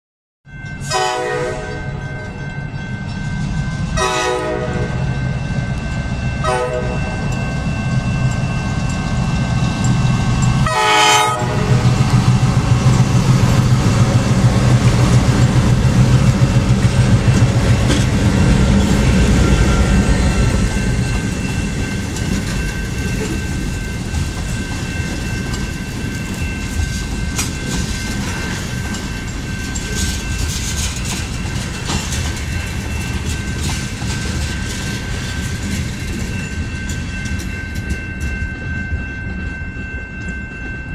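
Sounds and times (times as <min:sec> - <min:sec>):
crossing bell ringing: 0:00.4 - 0:40.9
train horn: 0:00.8 - 0:02.0, 0:04.0 - 0:05.1, 0:06.4 - 0:07.0, 0:10.6 - 0:12.0
locomotive engine rumble: 0:04.8 - 0:40.4
train wheels clattering: 0:09.7 - 0:40.9.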